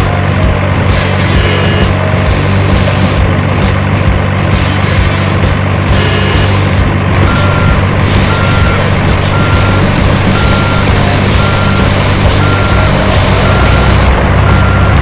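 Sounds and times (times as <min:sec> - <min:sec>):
heavy truck engine drone: 0:00.0 - 0:15.0
reversing alarm beeping: 0:01.3 - 0:02.0, 0:07.2 - 0:15.0.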